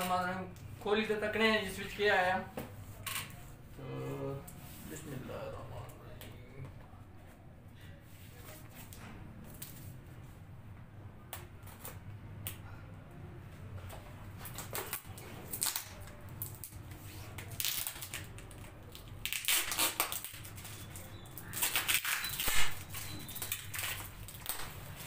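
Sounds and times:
packing tape peeling: 14.4s - 25.0s.

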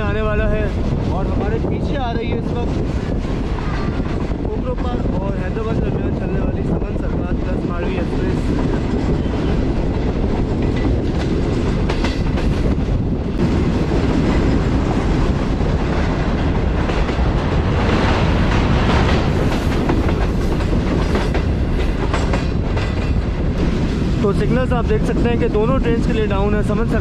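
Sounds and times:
clickety-clack of rails: 0.0s - 27.0s
train wheels rumbling on track: 0.0s - 27.0s.

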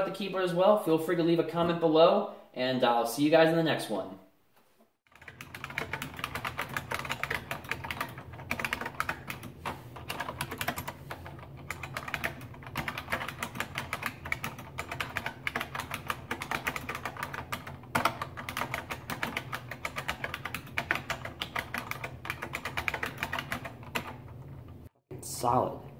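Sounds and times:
fast keyboard typing clicks: 5.1s - 24.8s.

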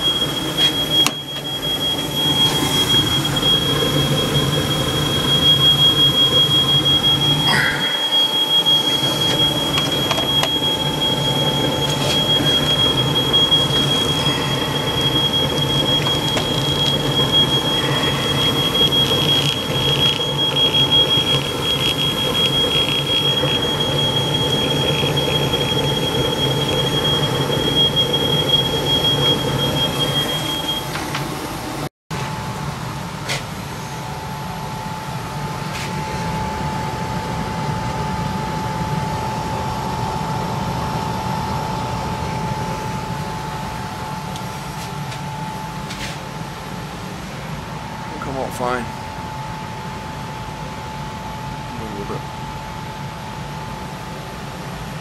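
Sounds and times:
smoke alarm tone: 0.0s - 31.8s
furnace humming: 0.0s - 55.0s.

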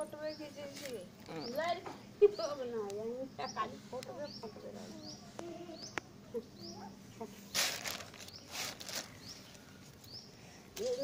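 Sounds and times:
hissing rustling noise bursts: 7.5s - 9.2s.

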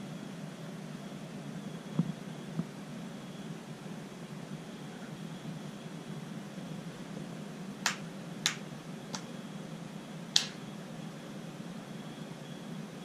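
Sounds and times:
steady low hum: 0.0s - 13.0s
sharp short clicks: 7.8s - 9.3s, 10.4s - 10.6s.

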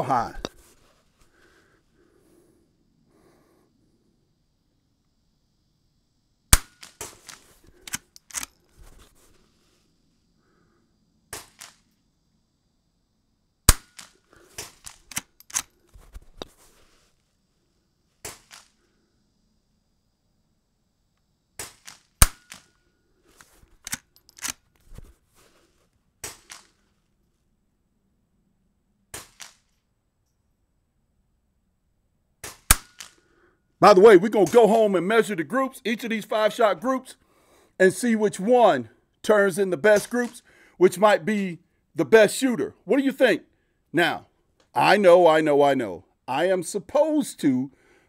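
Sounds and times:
suppressed rifle shots: 6.5s - 8.5s, 13.7s - 15.7s, 21.6s - 22.7s, 32.4s - 33.2s
rifle bolt clicking and clacking: 6.8s - 8.6s, 14.8s - 15.8s, 23.7s - 24.6s.

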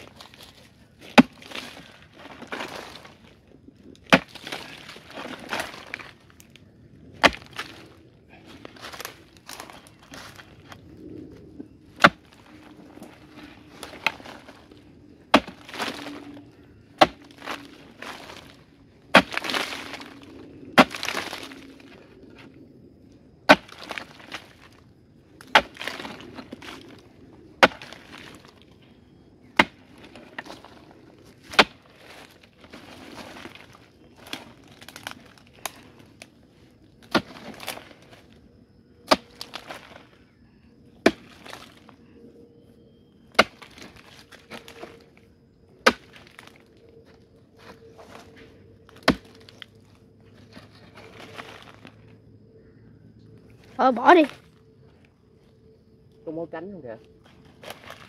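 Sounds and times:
crumbling earth rattle: 0.0s - 40.4s, 47.6s - 52.8s
digging tool striking hard earth: 1.0s - 3.2s, 4.0s - 6.2s, 7.2s - 7.9s, 12.0s - 14.6s, 15.3s - 16.4s, 17.0s - 21.6s, 23.4s - 24.7s, 25.4s - 27.0s, 27.6s - 28.6s, 29.5s - 30.8s, 31.4s - 35.8s, 37.0s - 38.0s, 41.0s - 41.8s, 43.3s - 44.9s, 45.8s - 46.5s, 48.9s - 49.7s.

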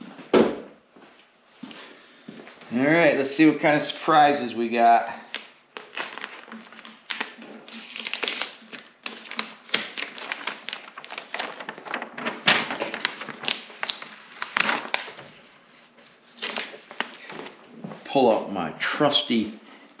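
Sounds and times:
paper crinkling and rustling: 5.0s - 18.2s
tape crackling as it peels: 5.3s - 15.3s.

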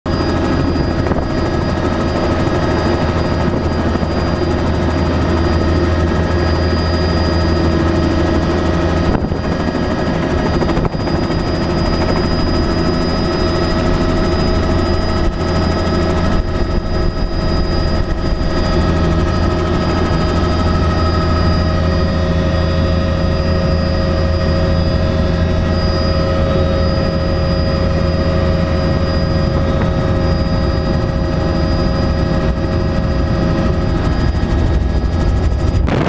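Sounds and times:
helicopter engine and rotor: 0.0s - 36.0s.

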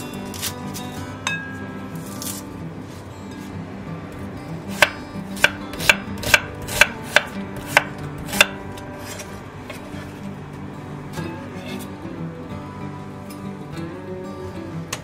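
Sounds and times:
knife chopping onion on wooden board: 4.7s - 9.8s.

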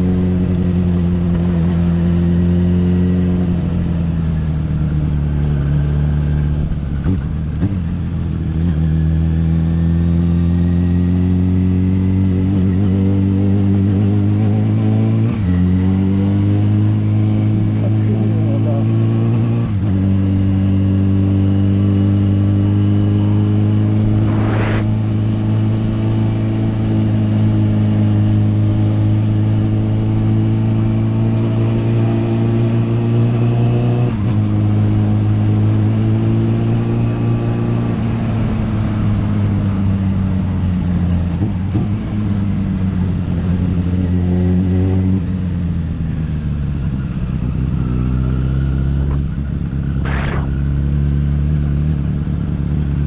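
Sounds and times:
motorcycle engine running: 15.6s - 31.4s, 45.2s - 53.0s.

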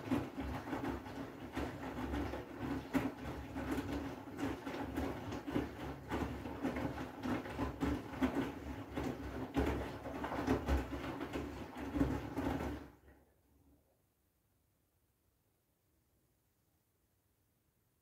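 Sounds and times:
wet clothes sloshing and thudding: 0.0s - 13.0s
washing machine motor hum: 0.0s - 13.2s.

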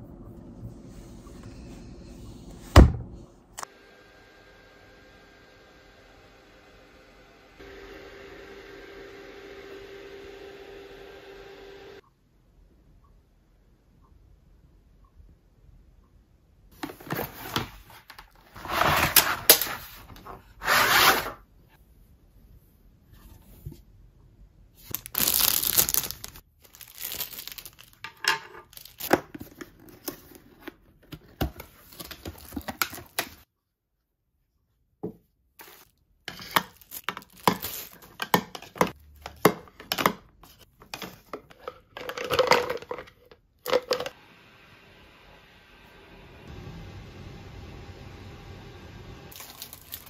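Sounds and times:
plastic wrapping crinkling: 24.8s - 29.3s, 35.6s - 38.2s, 49.3s - 50.0s.

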